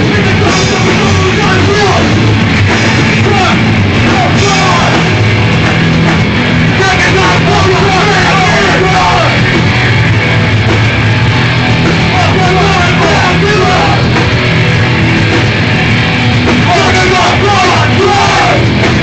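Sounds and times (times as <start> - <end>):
punk band playing live: 0.0 - 19.0
vocalist shouting: 3.2 - 5.1, 6.7 - 9.4, 12.1 - 14.2, 16.6 - 18.7.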